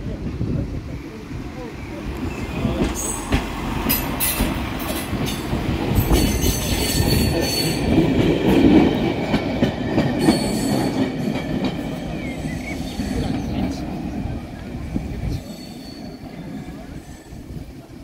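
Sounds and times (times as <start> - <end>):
train rumbling on track: 0.0 - 18.0
wheels clacking over rail joints: 2.1 - 14.2.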